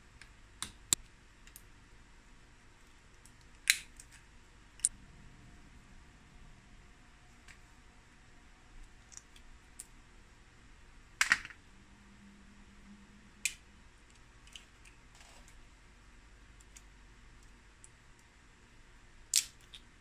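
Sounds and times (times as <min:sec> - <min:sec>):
crab shell cracking: 0:19.3 - 0:19.8.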